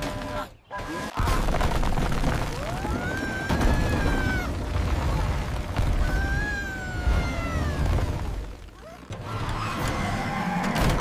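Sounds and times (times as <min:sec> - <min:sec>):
bricks tumbling rumble: 0:01.2 - 0:09.6.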